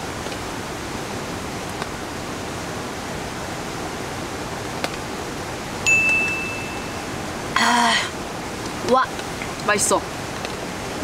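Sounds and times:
rain: 0.0 - 11.0
stream flowing: 0.0 - 11.0
bright ringing ding: 5.8 - 7.2.

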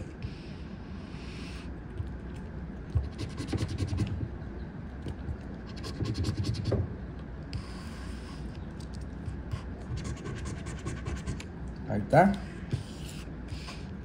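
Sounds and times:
coin scratching lottery ticket: 10.0 - 11.4.

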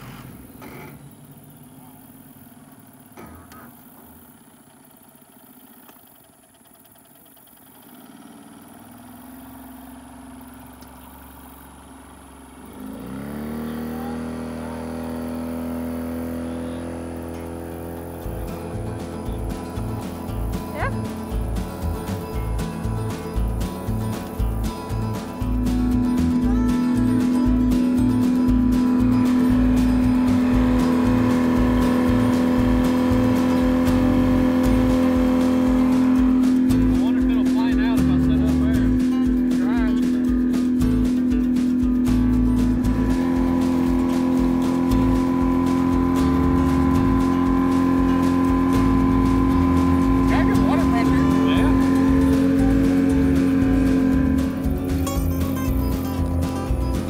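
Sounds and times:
outboard motor revving: 0.0 - 57.0
background music: 17.6 - 57.0.

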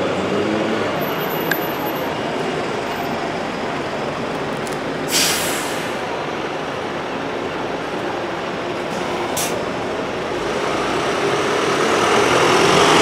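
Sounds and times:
bus engine running: 0.0 - 13.0
air brake hiss: 5.1 - 6.0, 9.0 - 9.6.

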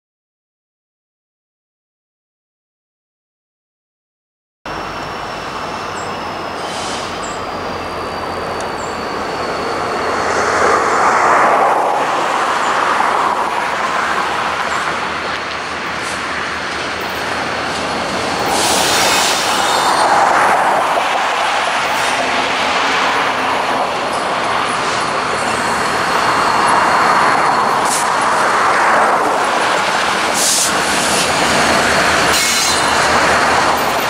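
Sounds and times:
faint high squeal: 4.7 - 11.0, 31.7 - 34.0
freight train approaching: 4.7 - 34.0.

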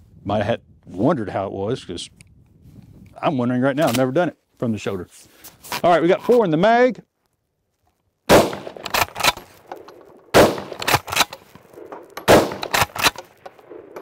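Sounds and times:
rifle shots: 8.3 - 14.0
rifle bolt clacks: 8.6 - 14.0.

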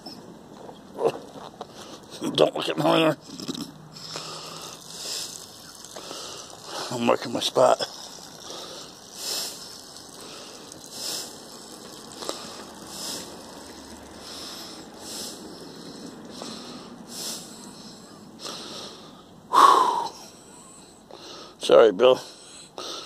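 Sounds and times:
man breathing: 3.9 - 6.9, 7.9 - 21.6, 22.2 - 23.0.

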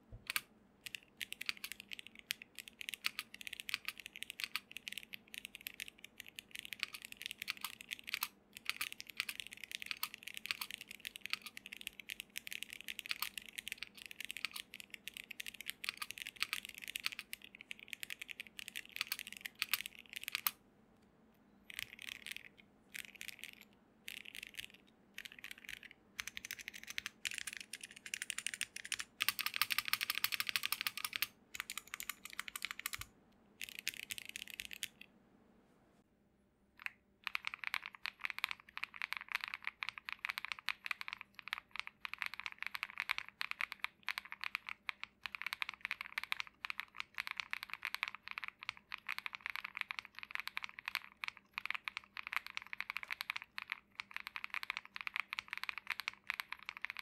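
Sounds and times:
mechanical keyboard key clacks: 23.0 - 34.9.

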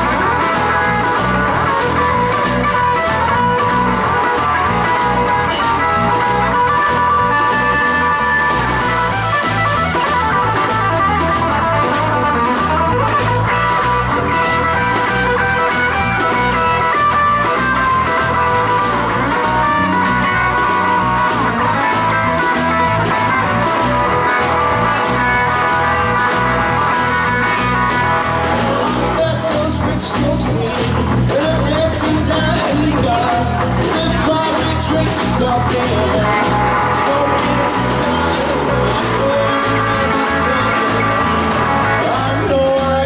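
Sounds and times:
blues-rock band instrumental: 0.0 - 43.0.

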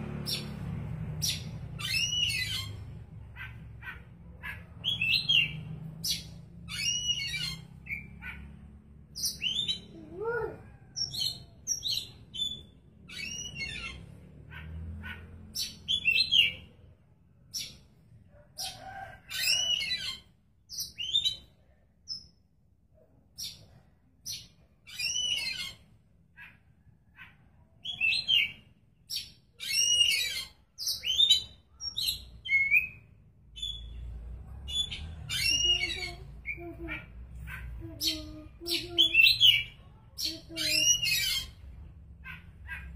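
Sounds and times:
bird singing whistles and rasps: 4.9 - 8.1.

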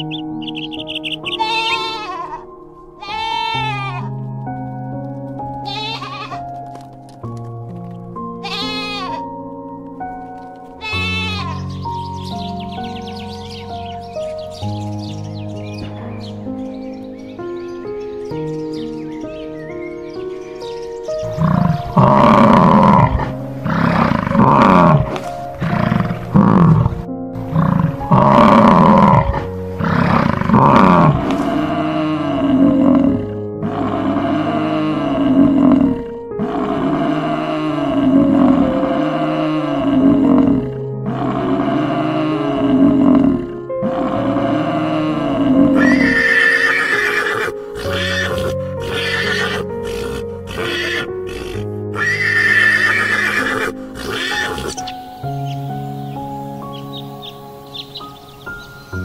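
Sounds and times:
background music: 0.0 - 59.0
horse whinnying: 1.2 - 4.1, 5.6 - 6.4, 8.4 - 9.3, 10.8 - 11.7, 21.3 - 37.3, 45.4 - 54.9
bison bellowing: 21.2 - 55.6.

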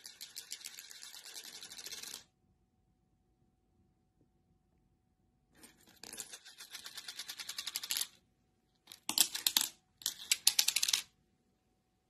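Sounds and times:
toy balls with bells rattling: 0.0 - 2.2.

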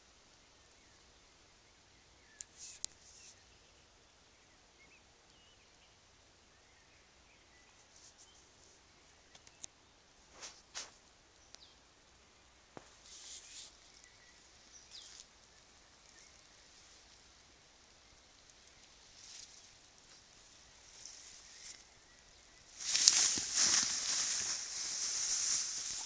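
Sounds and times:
small tick: 9.3 - 9.8, 11.5 - 11.7
rustling through tall grass: 10.2 - 11.0, 12.8 - 26.0.

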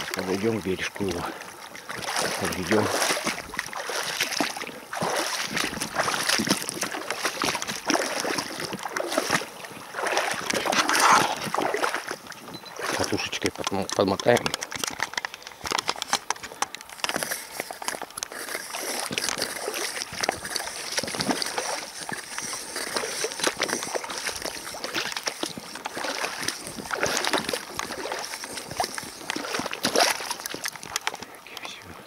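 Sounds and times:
river water splashing: 0.0 - 31.4
small clicks and ticks: 13.3 - 31.8.

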